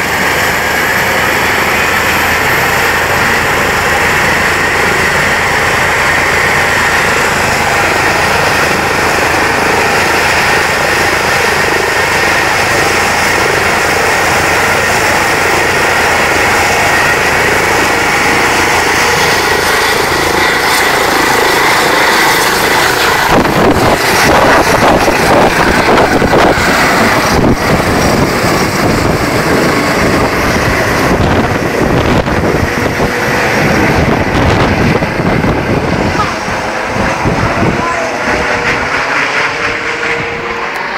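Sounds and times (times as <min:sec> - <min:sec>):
helicopter turbines and rotor: 0:00.0 - 0:40.9
rotor wash buffeting microphone: 0:00.0 - 0:40.9.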